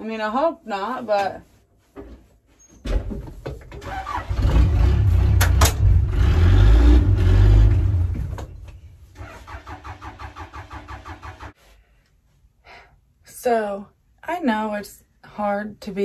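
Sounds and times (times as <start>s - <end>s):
starter cranking engine: 3.8s - 8.4s, 9.2s - 11.5s.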